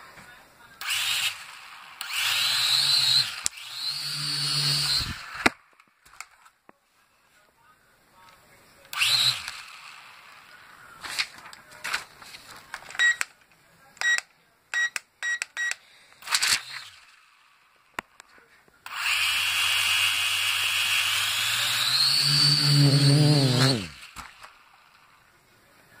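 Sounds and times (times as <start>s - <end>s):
quadcopter motors whining: 0.8s - 5.5s, 8.9s - 10.5s, 16.2s - 17.2s, 18.9s - 24.6s
short electronic beeps: 13.0s - 13.2s, 14.8s - 15.8s.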